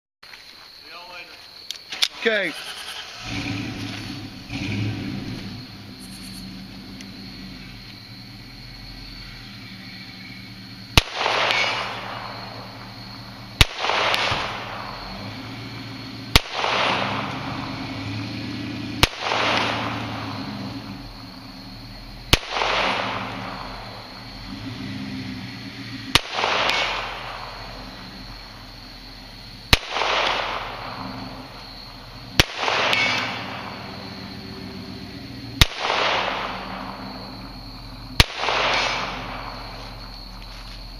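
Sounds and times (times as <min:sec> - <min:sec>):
rolling echo: 0:03.8 - 0:40.9
pistol shots: 0:10.9 - 0:15.5, 0:16.3 - 0:17.8, 0:19.0 - 0:21.3, 0:22.3 - 0:24.1, 0:26.1 - 0:28.0, 0:29.7 - 0:34.9, 0:35.6 - 0:37.4, 0:38.1 - 0:40.1.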